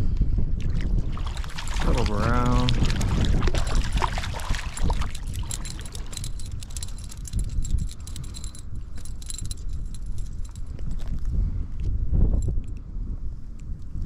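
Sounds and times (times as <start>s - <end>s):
wind buffeting microphone: 0.0s - 14.0s
small clicks and rattles: 4.0s - 11.1s.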